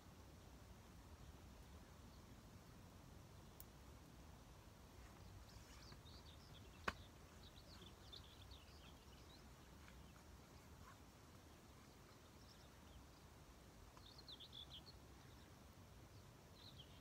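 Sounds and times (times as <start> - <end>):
faint bird chirps: 5.0 - 17.0.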